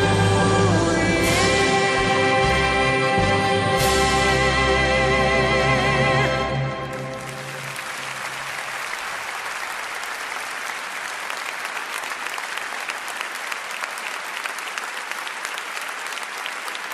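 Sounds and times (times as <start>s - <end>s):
audience applauding: 6.8s - 16.9s.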